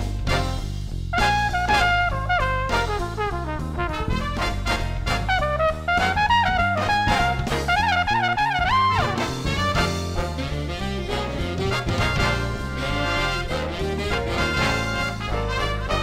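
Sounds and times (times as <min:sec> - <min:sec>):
bass line: 0:00.0 - 0:16.0
drums: 0:00.0 - 0:16.0
trumpet melody: 0:00.0 - 0:16.0.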